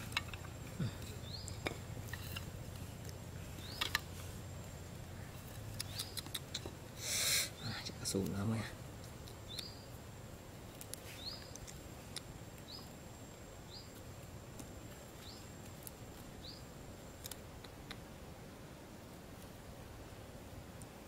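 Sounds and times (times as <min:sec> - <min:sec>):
small bird chirping: 0:00.0 - 0:04.3, 0:05.0 - 0:10.0, 0:10.6 - 0:13.0, 0:13.6 - 0:14.2, 0:14.9 - 0:18.0
outdoor background noise: 0:00.0 - 0:21.0.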